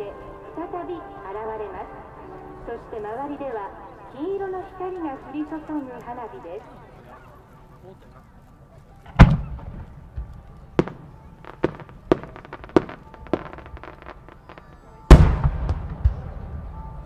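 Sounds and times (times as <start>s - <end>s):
sharp firework cracks: 9.1s - 16.4s
firework booms: 9.1s - 16.9s.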